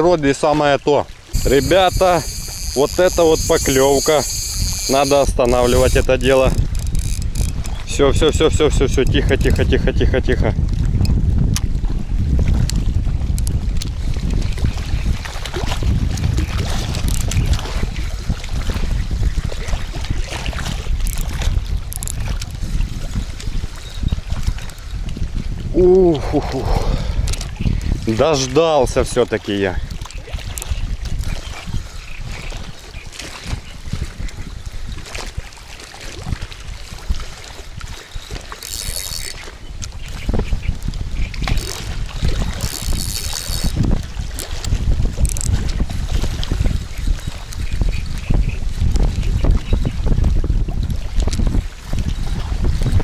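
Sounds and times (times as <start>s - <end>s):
wind buffeting microphone: 0.0s - 53.0s
fishing reel clicks: 1.3s - 7.8s, 16.9s - 17.5s, 21.0s - 22.5s, 38.0s - 40.2s, 41.4s - 45.6s
small waves lapping: 29.2s - 48.0s.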